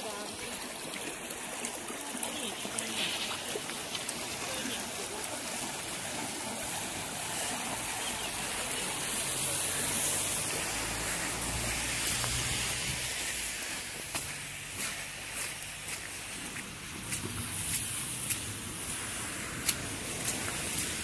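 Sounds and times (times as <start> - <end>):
rushing water hiss: 0.0 - 21.0.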